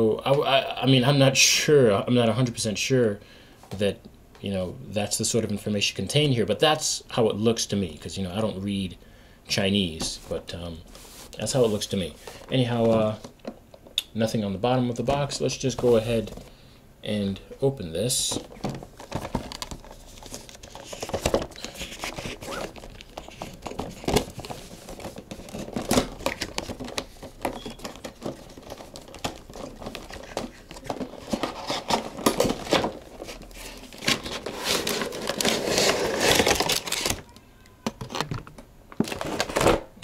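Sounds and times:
cardboard packaging rustling: 0:18.2 - 0:37.3, 0:39.0 - 0:39.9.

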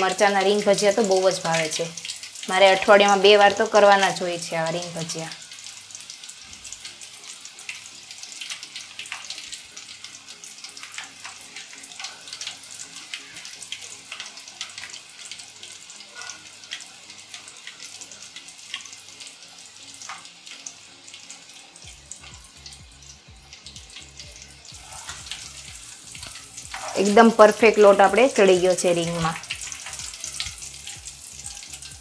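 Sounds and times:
oil bubbling and crackling: 0:00.0 - 0:32.0
sharp popping in hot oil: 0:04.8 - 0:27.9, 0:29.0 - 0:32.0.

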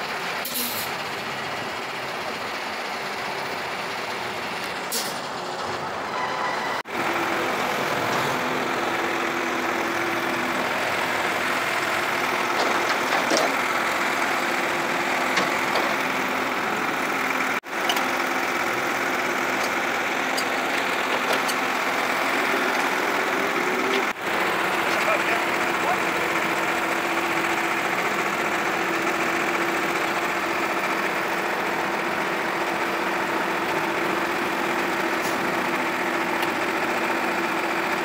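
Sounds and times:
truck engine idling: 0:00.0 - 0:38.0.

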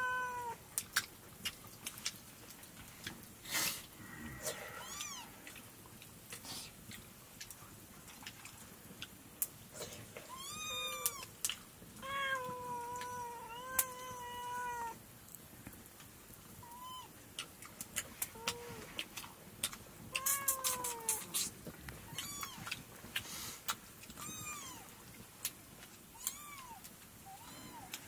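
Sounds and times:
cat meowing: 0:00.0 - 0:00.6, 0:04.8 - 0:05.3, 0:10.3 - 0:11.3, 0:12.0 - 0:15.0, 0:16.6 - 0:17.1, 0:20.1 - 0:21.4, 0:22.1 - 0:22.7, 0:24.2 - 0:24.9, 0:26.2 - 0:28.0.

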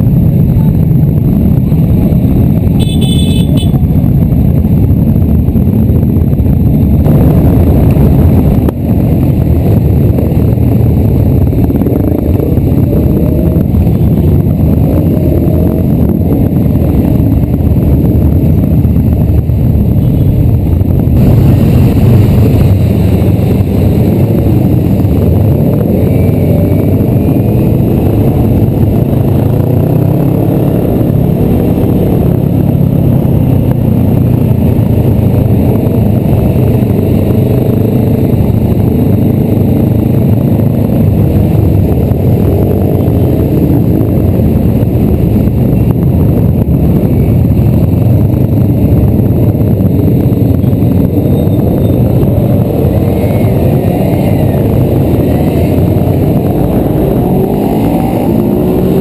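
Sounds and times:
low engine rumble: 0:00.0 - 0:59.0
motorcycle engine revving: 0:00.0 - 0:59.0.

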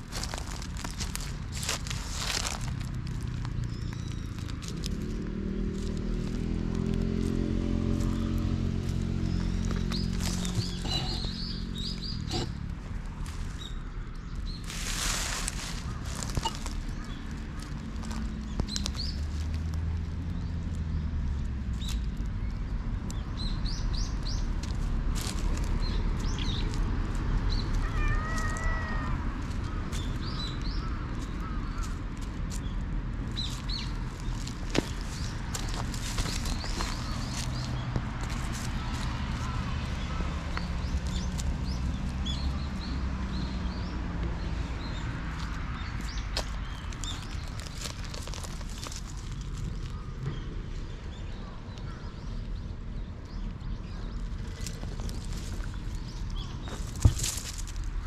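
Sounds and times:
dry leaves crackling: 0:00.0 - 0:58.0
small birds chirping: 0:00.0 - 0:58.0
clicks and rustles: 0:14.7 - 0:19.9, 0:45.4 - 0:50.0, 0:54.2 - 0:58.0
cat meowing: 0:27.7 - 0:29.4.

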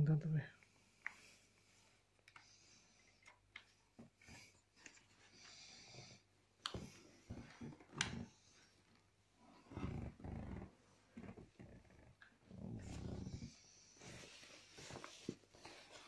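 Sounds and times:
fabric rustling: 0:12.7 - 0:16.0.

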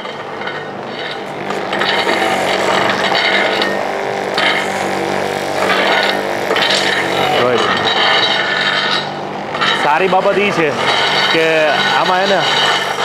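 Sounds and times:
juicer motor humming and grinding: 0:00.0 - 0:13.0.

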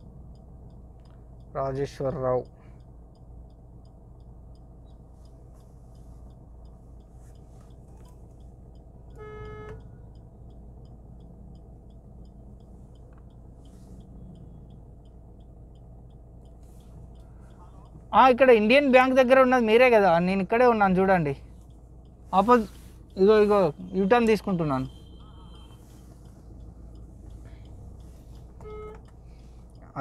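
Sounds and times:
faint regular ticking: 0:00.0 - 0:30.0
low traffic noise: 0:00.0 - 0:30.0
vehicle horn honking: 0:09.1 - 0:09.8, 0:24.8 - 0:26.0, 0:28.6 - 0:29.0.

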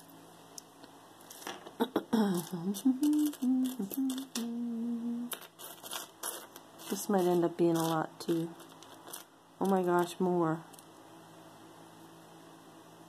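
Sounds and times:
woman humming: 0:01.8 - 0:05.4
earrings clicking: 0:02.4 - 0:04.6.

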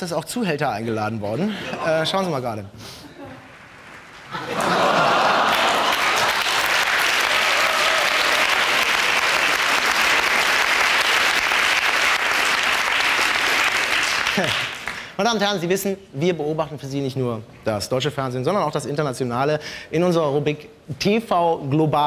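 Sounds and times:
studio audience applauding: 0:03.4 - 0:15.2.

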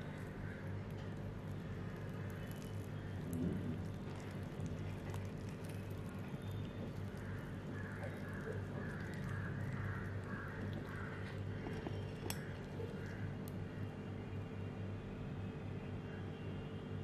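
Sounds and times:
fried crust crackling: 0:00.0 - 0:13.4
low electrical hum: 0:00.0 - 0:17.0.

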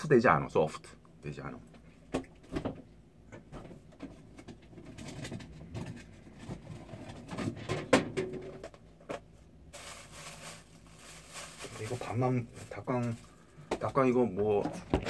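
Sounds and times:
household objects knocking and rustling: 0:02.1 - 0:09.3, 0:13.6 - 0:15.0.

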